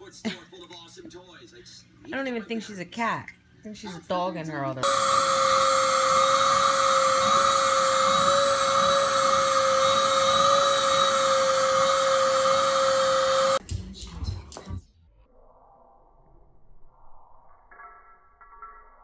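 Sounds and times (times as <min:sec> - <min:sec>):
vacuum cleaner whine: 0:04.8 - 0:13.6.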